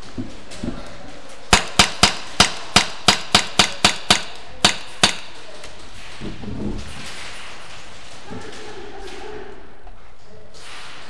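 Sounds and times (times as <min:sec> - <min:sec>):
airsoft pistol shots: 0:01.5 - 0:05.4.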